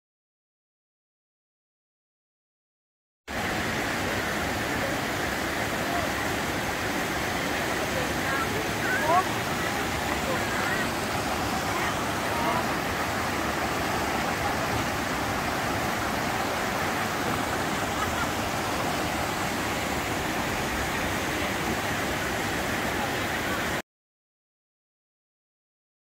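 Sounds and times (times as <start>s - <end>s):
waterfall water rushing over rocks: 3.3s - 23.8s.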